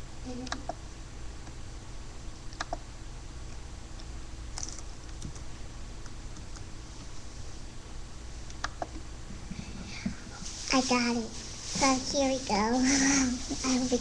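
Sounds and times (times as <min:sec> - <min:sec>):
steady low hum: 0:00.0 - 0:14.0
keyboard and mouse clicks: 0:00.4 - 0:00.8, 0:02.5 - 0:02.8, 0:04.0 - 0:05.5, 0:08.5 - 0:09.0.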